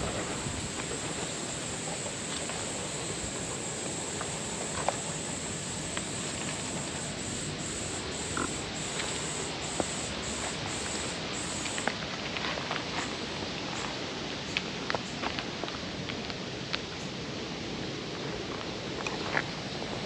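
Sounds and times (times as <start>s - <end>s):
cicada buzzing: 0.0s - 11.9s
outdoor hiss: 0.0s - 20.0s.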